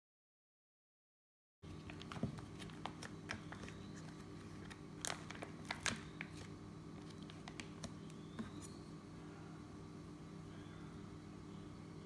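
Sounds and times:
steady low hum: 0:01.6 - 0:12.0
paper wrapper crinkling: 0:01.9 - 0:08.0.

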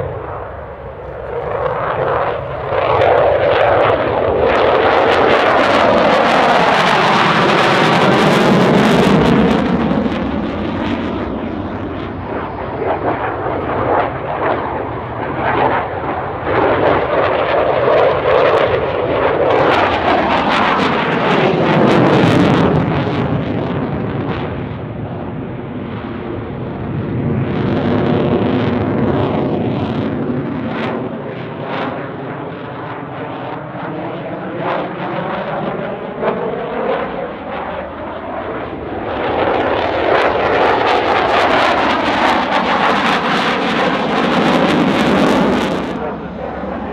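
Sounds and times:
fighter jet passing: 0:00.0 - 0:46.9.

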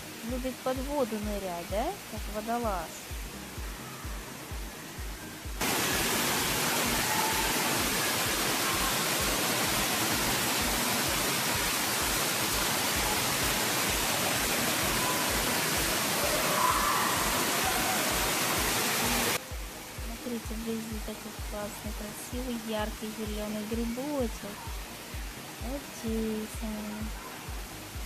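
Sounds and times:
water pouring from fountain: 0:05.6 - 0:19.4.

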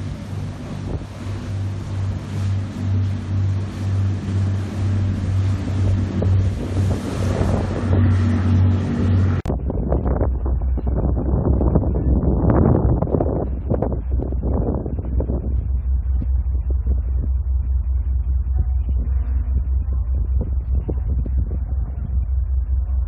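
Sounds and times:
rushing water: 0:00.0 - 0:09.5
low engine drone: 0:00.0 - 0:23.0
wind buffeting microphone: 0:00.0 - 0:23.0.

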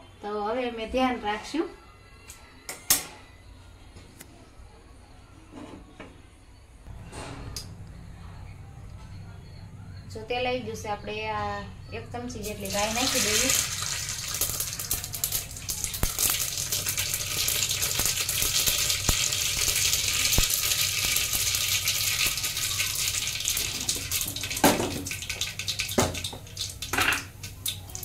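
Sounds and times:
seeds sizzling in hot oil: 0:12.4 - 0:28.0.

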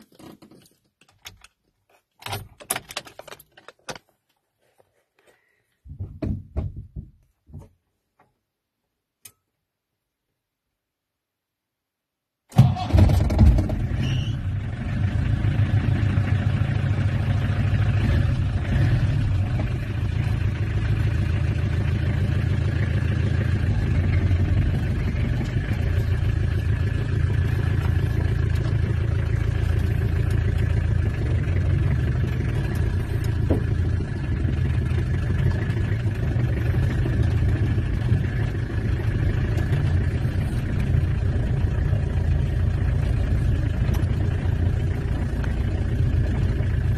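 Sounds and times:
diesel engine from inside cab: 0:12.5 - 0:46.9.

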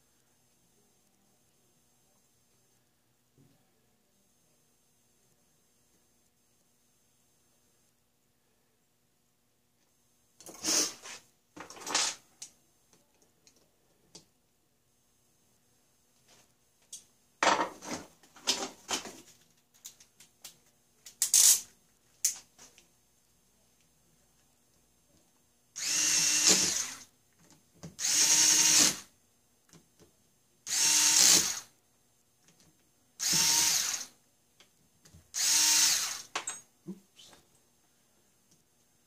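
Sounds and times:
electric screwdriver driving screws: 0:25.8 - 0:27.1, 0:28.0 - 0:29.1, 0:30.7 - 0:31.7, 0:33.2 - 0:34.1, 0:35.4 - 0:36.3.

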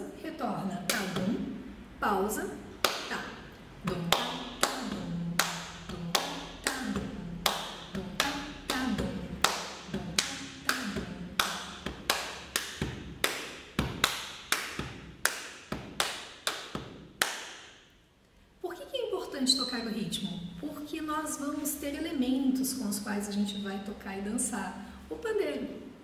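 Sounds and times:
hand claps: 0:02.8 - 0:03.2, 0:03.8 - 0:17.8
palm slaps on chest: 0:11.4 - 0:17.8.

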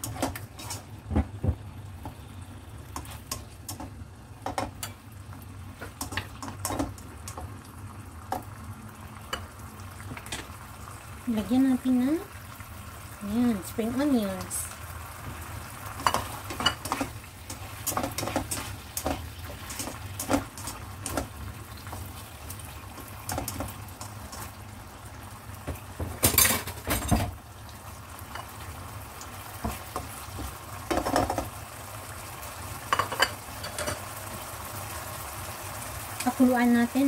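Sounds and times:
spatula scraping in a wok: 0:00.0 - 0:01.0
sauce simmering and sizzling: 0:00.0 - 0:37.0.

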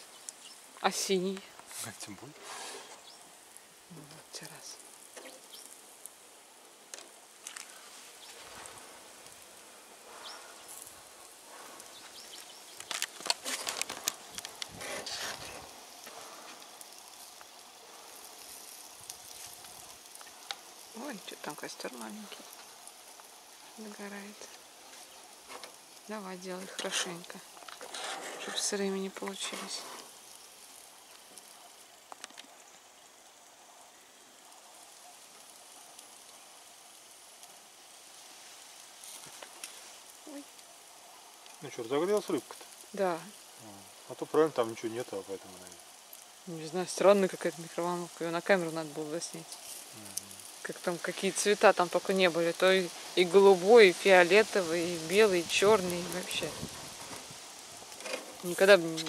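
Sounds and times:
faint steady hiss: 0:00.0 - 0:59.0
meat sizzling over charcoal: 0:00.0 - 0:59.0
sharp crackles and pops: 0:00.0 - 0:59.0.

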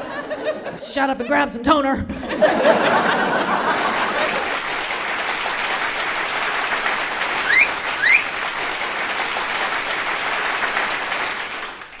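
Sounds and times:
audience applauding: 0:02.8 - 0:12.0
short rising whistles: 0:07.4 - 0:08.4.

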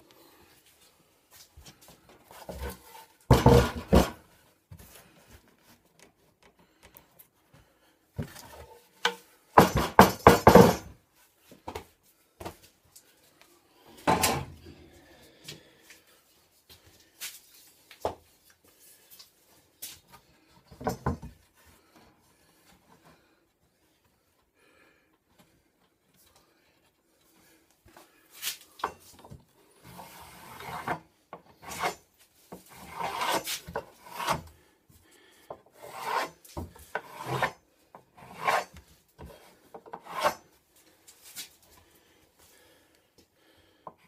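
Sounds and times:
wood plank knocking and scraping: 0:03.3 - 0:04.2.

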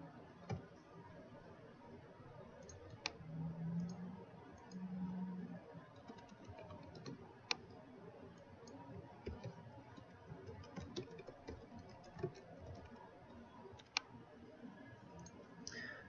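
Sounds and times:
computer keyboard typing: 0:02.6 - 0:03.2, 0:05.9 - 0:07.7, 0:08.4 - 0:14.1, 0:15.1 - 0:15.8.

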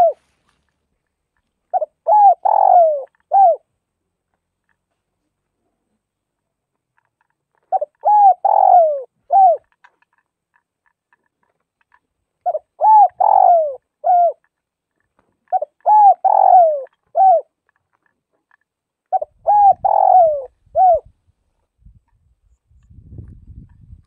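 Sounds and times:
dove cooing: 0:00.0 - 0:00.3, 0:01.7 - 0:03.7, 0:07.7 - 0:09.8, 0:12.4 - 0:14.5, 0:15.4 - 0:17.6, 0:19.1 - 0:21.1.

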